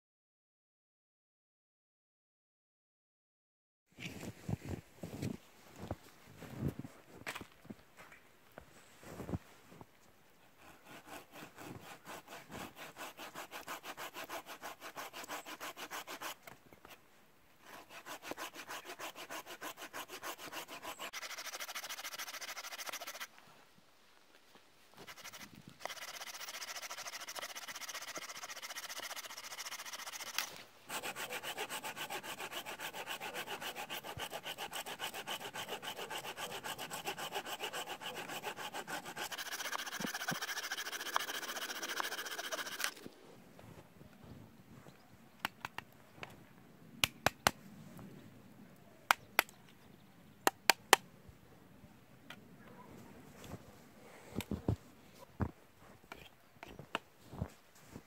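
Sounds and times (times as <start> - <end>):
hand saw cutting branch: 10.6 - 16.6, 17.6 - 23.3, 25.0 - 43.0.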